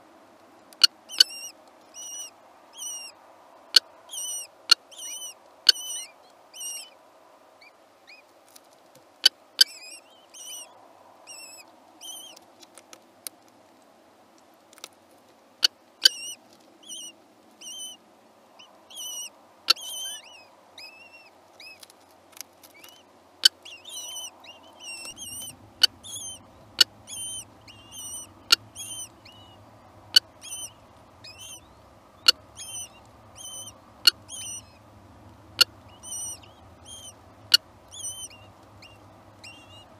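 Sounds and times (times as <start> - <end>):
faint low hum: 0.0 - 39.9
bird chicks cheeping: 0.8 - 7.0, 9.6 - 12.4, 16.0 - 18.0, 18.6 - 21.9, 22.6 - 39.9.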